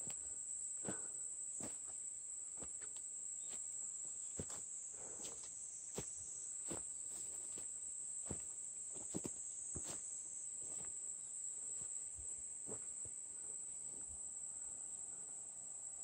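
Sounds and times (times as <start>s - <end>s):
insects chirring: 0.0s - 16.0s
footsteps through tall grass: 4.4s - 11.0s.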